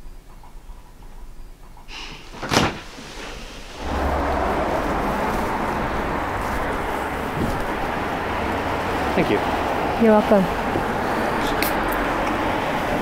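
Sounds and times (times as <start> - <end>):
distant traffic: 1.9 - 13.0
low hum: 2.8 - 13.0.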